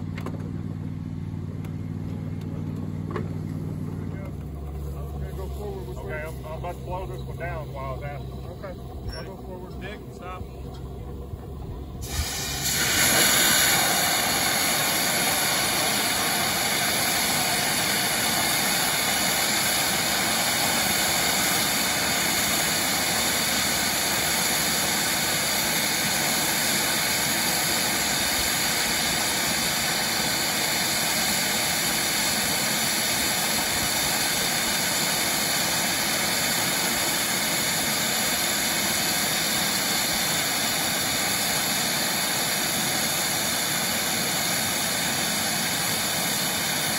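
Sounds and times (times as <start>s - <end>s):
loud steam hiss: 4.6s - 46.9s.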